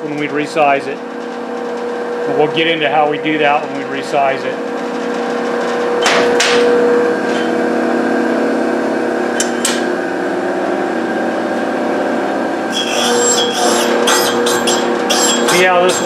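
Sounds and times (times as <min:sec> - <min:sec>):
grinder motor hum: 0:00.0 - 0:16.0
rasping grind on wheel: 0:12.7 - 0:16.0.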